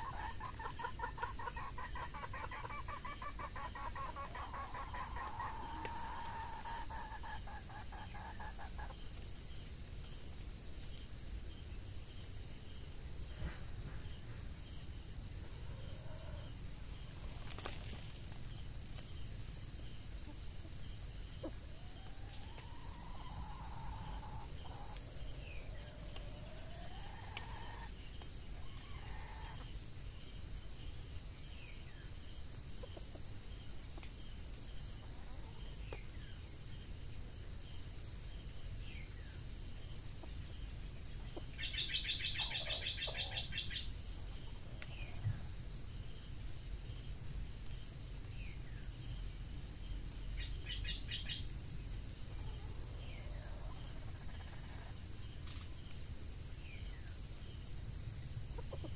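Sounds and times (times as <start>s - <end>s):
forest insects droning: 0.0s - 58.9s.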